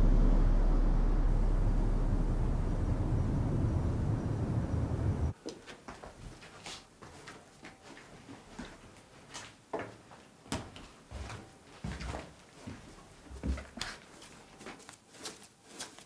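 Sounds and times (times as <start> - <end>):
outdoor rumble: 0.0 - 5.4.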